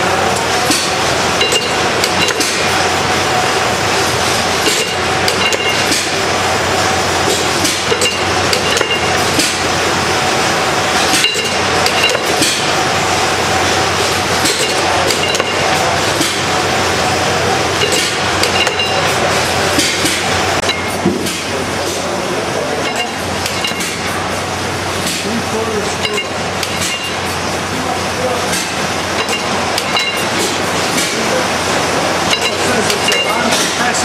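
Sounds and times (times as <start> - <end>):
steady mechanical noise: 0.0 - 34.0
engine metallic clicks and knocks: 0.3 - 2.8, 4.6 - 6.2, 7.2 - 9.7, 11.0 - 12.8, 14.1 - 16.6, 17.7 - 22.1, 26.0 - 27.3, 28.4 - 31.3.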